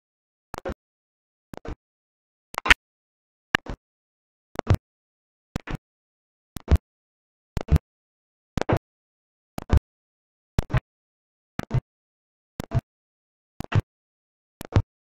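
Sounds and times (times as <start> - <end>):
clicks with brief bursts: 2.6 - 2.8.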